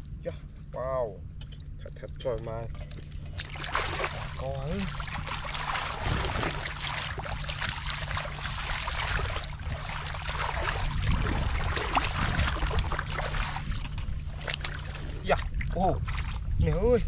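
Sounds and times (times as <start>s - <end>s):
low rumble: 0.0s - 17.0s
hands sloshing through muddy water: 3.1s - 16.7s.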